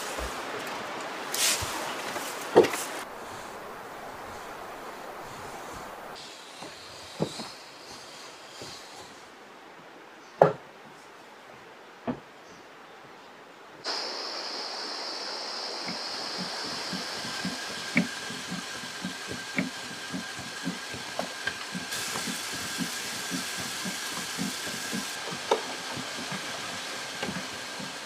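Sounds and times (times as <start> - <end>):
seeds pouring hiss: 0.0 - 9.3, 13.9 - 28.0
fan air rushing: 0.0 - 9.4, 13.9 - 28.0
crank knocking: 15.8 - 28.0.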